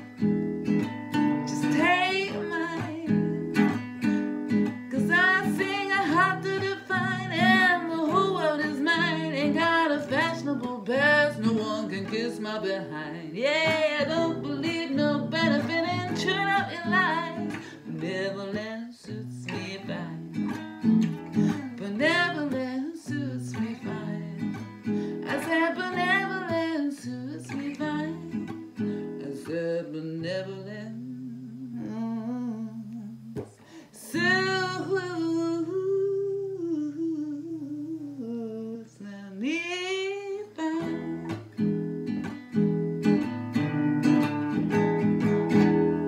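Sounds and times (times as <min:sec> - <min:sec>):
acoustic guitar strumming: 0:00.0 - 0:35.8, 0:40.1 - 0:46.0
woman singing wordless melody: 0:01.1 - 0:41.7.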